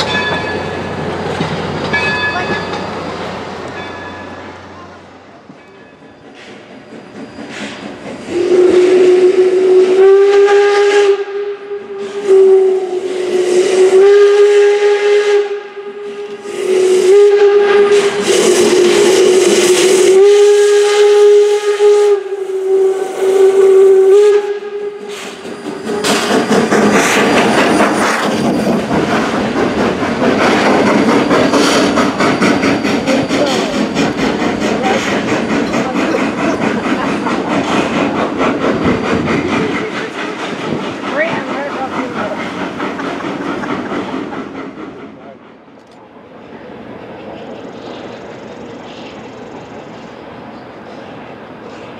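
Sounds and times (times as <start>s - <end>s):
rush of steam and exhaust: 0.0s - 51.9s
steam whistle long blasts: 8.3s - 26.0s.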